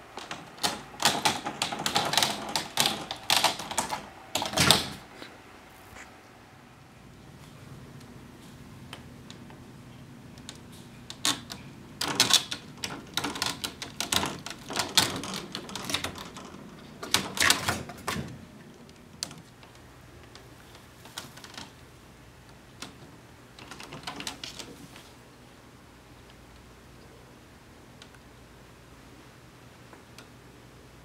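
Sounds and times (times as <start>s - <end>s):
kitten claws clicking on window screen: 0.2s - 4.9s, 10.4s - 18.3s, 18.9s - 21.8s, 23.6s - 25.0s.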